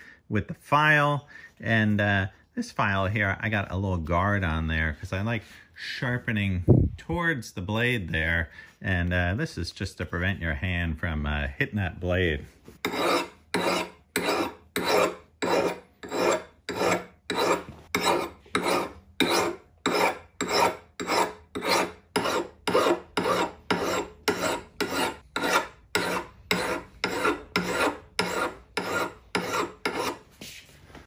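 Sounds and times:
file rasping on steel: 12.8s - 30.3s.

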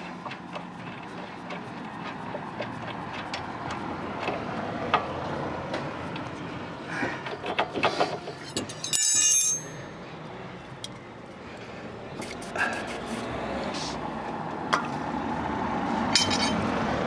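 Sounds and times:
loud ringing metallic clang: 8.6s - 10.0s.

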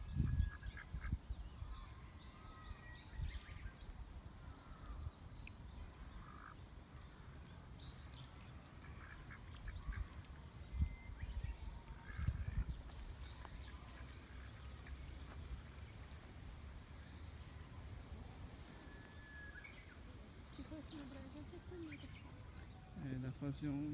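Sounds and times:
wind rumbling on microphone: 0.0s - 5.9s, 9.6s - 18.9s
ducks calling softly: 0.3s - 1.9s, 4.4s - 22.9s.

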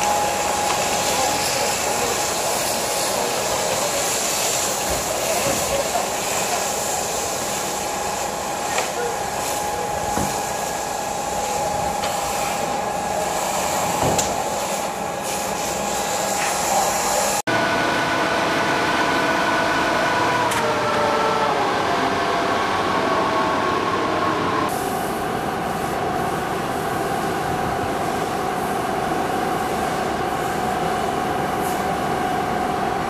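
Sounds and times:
fire hose spraying water: 0.0s - 17.4s
fire truck engine and pump: 0.0s - 33.0s
mechanical hum: 0.0s - 33.0s.

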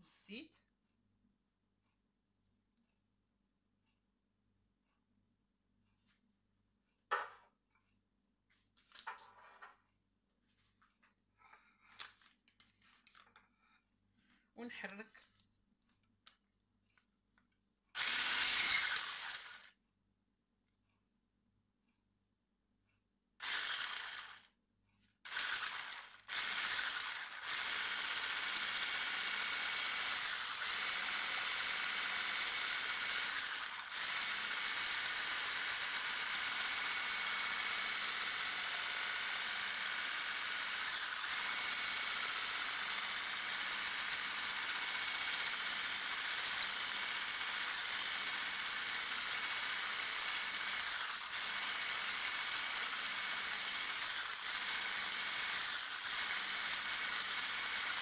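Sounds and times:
electric hand mixer whining: 18.0s - 19.7s, 23.4s - 24.4s, 25.3s - 58.0s.

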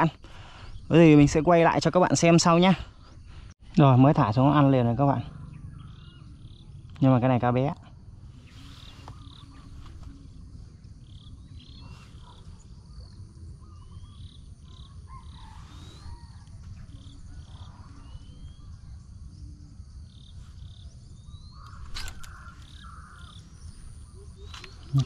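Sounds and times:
high insect whine: 0.0s - 25.0s
sharp click: 21.6s - 22.8s.

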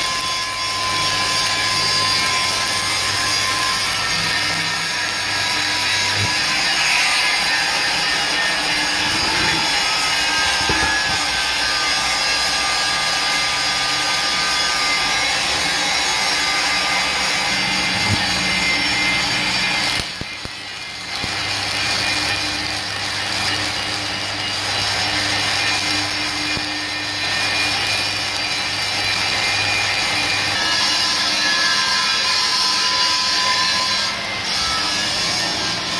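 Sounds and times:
welding arc crackling hiss: 0.0s - 35.9s.

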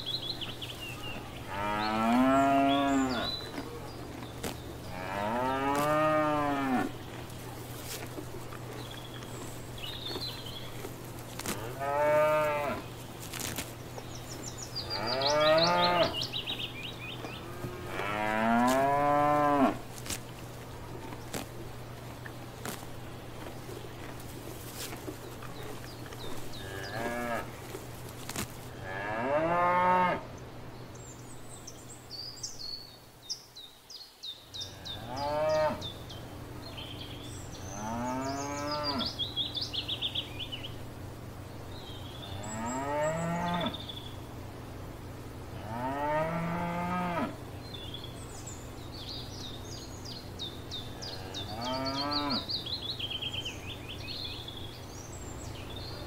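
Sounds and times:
cows mooing: 1.4s - 3.6s, 4.8s - 7.0s, 11.5s - 12.8s, 14.8s - 16.3s, 17.2s - 19.8s, 26.5s - 27.5s, 28.8s - 30.2s, 34.8s - 35.8s, 37.7s - 39.1s, 42.4s - 43.8s, 45.6s - 47.4s, 51.0s - 52.5s.

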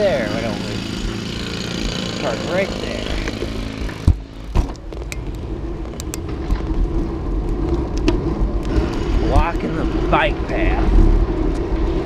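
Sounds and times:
bicycle road rumble: 0.0s - 12.0s
steady low hum: 0.0s - 12.0s
wind: 0.0s - 12.0s
bicycle thumps off curb: 3.3s - 5.2s.

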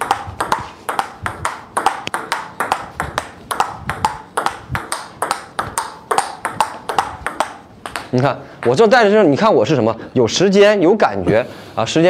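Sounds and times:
table tennis ball clicking: 0.0s - 8.8s.

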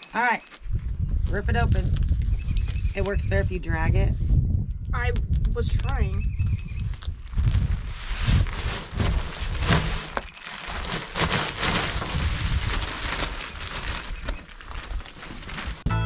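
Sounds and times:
soil hissing and rustling: 6.8s - 15.8s
plastic bag crinkling: 6.8s - 15.9s.

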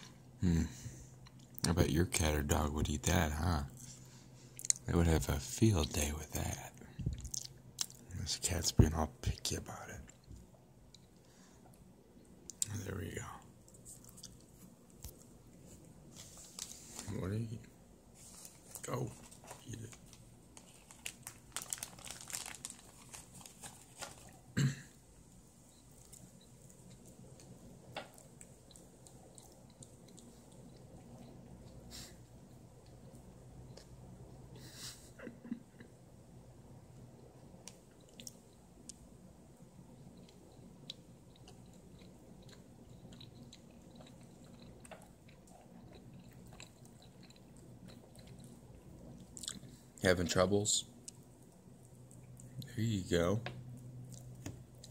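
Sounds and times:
cough-like voice sound: 24.6s - 24.9s
cat chewing and licking: 25.9s - 33.8s, 40.0s - 49.8s.

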